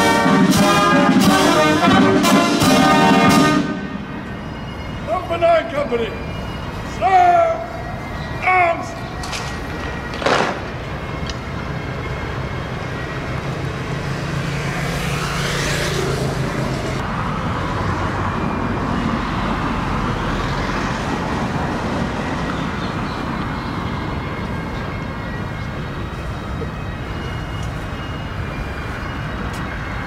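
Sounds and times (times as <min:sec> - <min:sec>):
road traffic noise: 0:00.0 - 0:30.0
vehicle passing by: 0:12.5 - 0:24.3.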